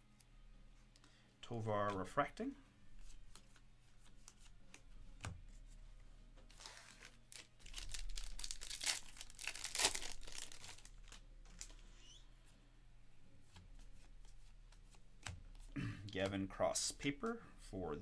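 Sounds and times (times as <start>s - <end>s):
foil wrapper crinkling and tearing: 6.5s - 11.7s.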